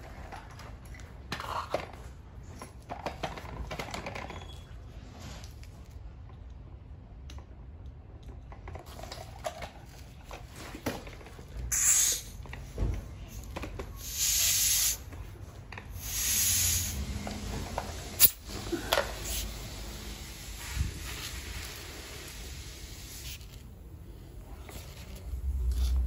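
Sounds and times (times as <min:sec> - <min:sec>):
air hissing into inner tube: 0:11.7 - 0:12.4, 0:14.0 - 0:15.1, 0:15.9 - 0:23.6.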